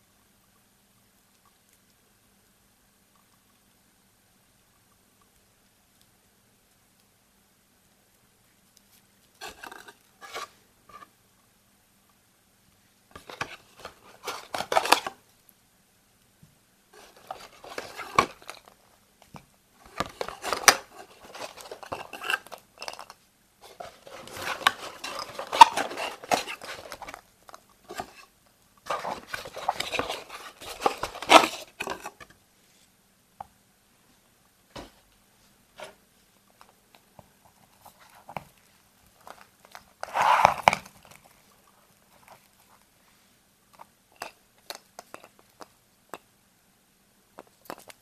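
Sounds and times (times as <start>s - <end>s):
cardboard scraping: 9.4s - 11.0s, 13.2s - 15.2s, 17.0s - 18.7s, 19.9s - 22.6s, 23.6s - 27.2s, 27.9s - 32.3s, 40.0s - 41.1s
foil rustling: 23.6s - 32.1s.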